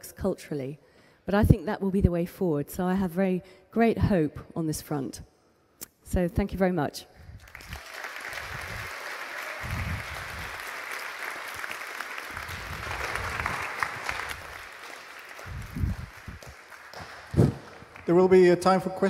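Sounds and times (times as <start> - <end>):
audience applauding: 7.4 - 18.8.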